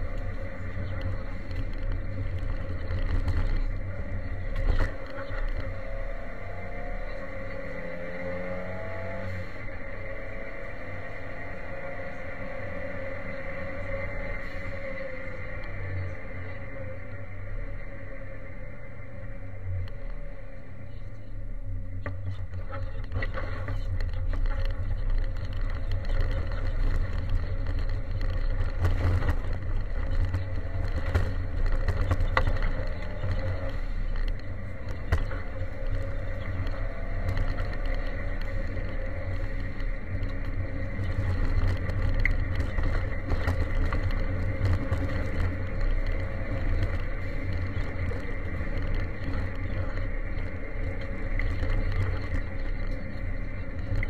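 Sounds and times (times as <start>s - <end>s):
gravel clattering on underbody: 0.0s - 9.8s, 21.9s - 54.0s
car engine running hard: 0.0s - 54.0s.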